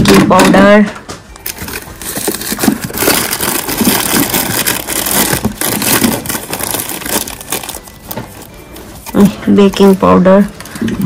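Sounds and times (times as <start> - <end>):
jars and packets rattling in drawer: 1.4 - 8.5.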